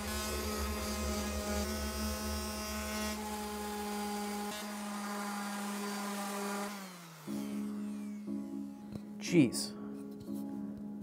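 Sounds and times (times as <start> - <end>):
electric sander on wood: 0.0 - 9.2.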